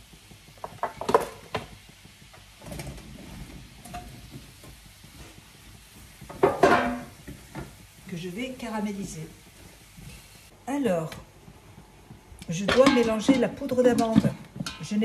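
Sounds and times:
metal kitchenware clattering: 6.4 - 7.1, 12.6 - 15.0.

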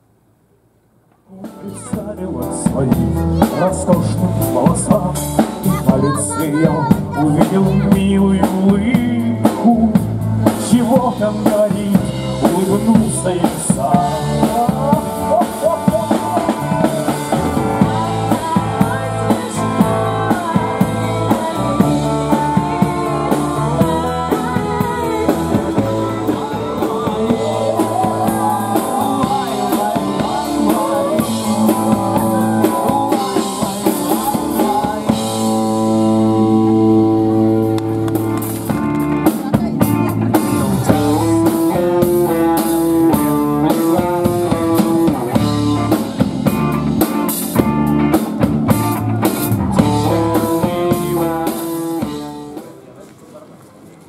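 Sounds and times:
person singing: 1.3 - 38.0, 39.5 - 52.7
drum kit beat: 1.3 - 52.7
guitar chords: 1.4 - 52.8.

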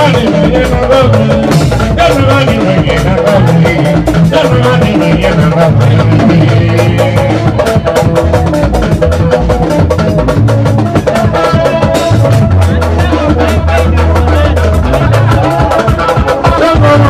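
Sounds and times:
live band music: 0.0 - 17.0.

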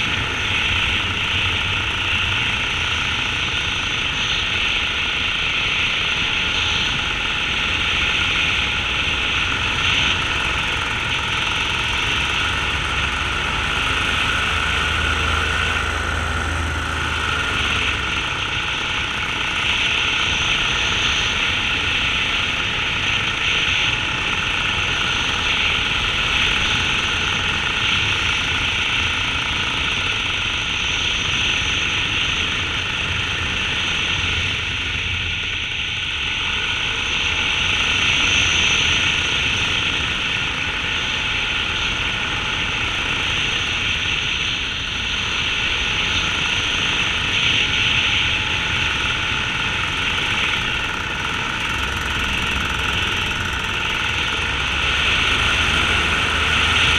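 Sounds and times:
small aircraft engine and propeller: 0.0 - 56.9.

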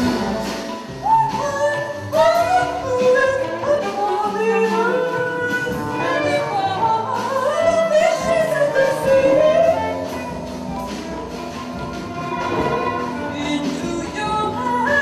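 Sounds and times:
drum kit and cymbal strikes: 0.0 - 1.4.

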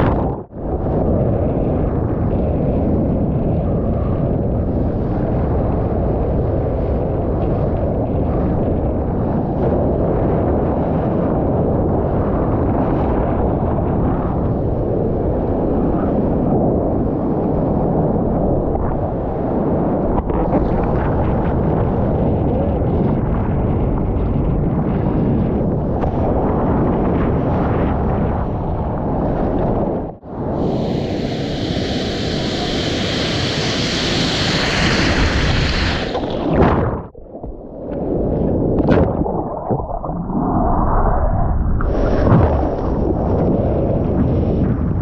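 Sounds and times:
wind buffeting microphone: 0.0 - 45.0
storm surf: 18.8 - 45.0.

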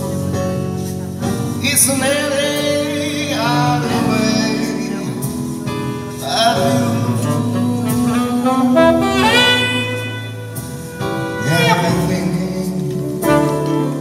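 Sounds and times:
soft accompaniment: 0.3 - 14.0
saxophone playing jazz ballad: 6.8 - 14.0.

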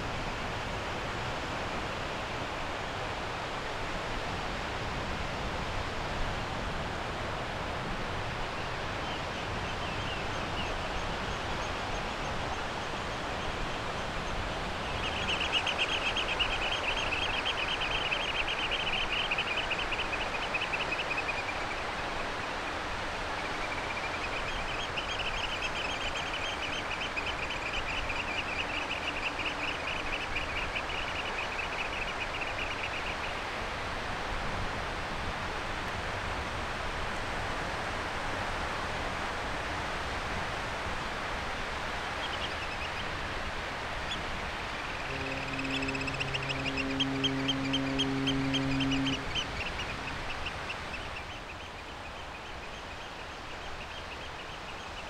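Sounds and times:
outdoor background rush: 0.0 - 55.0
bird trilling: 44.9 - 51.6.

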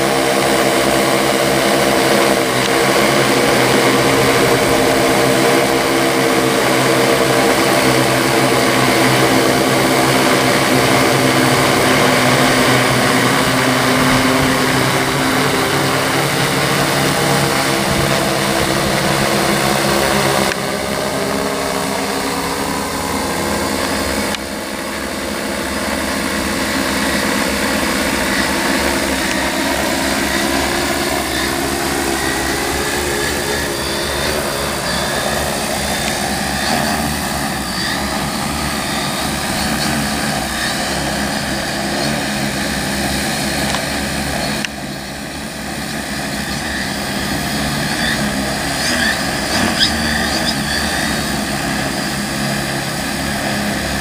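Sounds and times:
drone rotors droning: 0.0 - 54.0.

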